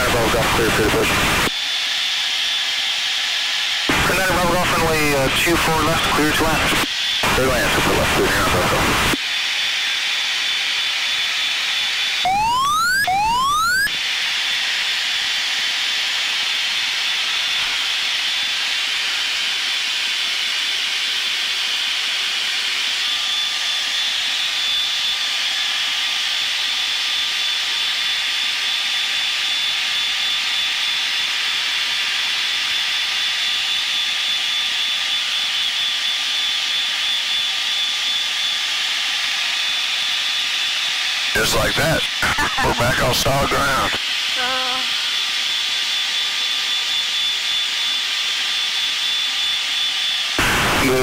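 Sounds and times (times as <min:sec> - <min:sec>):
high steady jet whine: 0:00.0 - 0:51.0.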